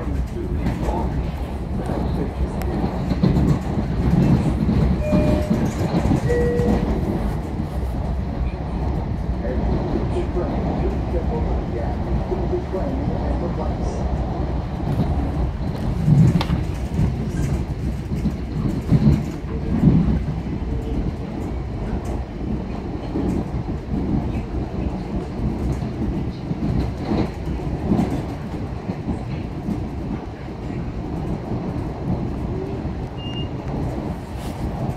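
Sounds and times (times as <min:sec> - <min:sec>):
train knocks: 0:00.0 - 0:08.1
train wheels rumbling on rail: 0:00.0 - 0:34.9.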